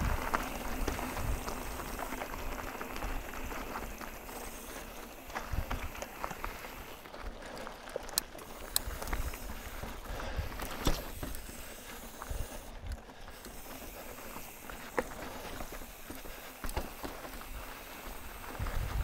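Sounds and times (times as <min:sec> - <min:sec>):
bike knocking and rattling: 0:00.0 - 0:19.0
tyres on rock and dirt: 0:00.0 - 0:19.0
bike clattering and knocking: 0:10.4 - 0:11.5
wind rumble: 0:18.6 - 0:19.0.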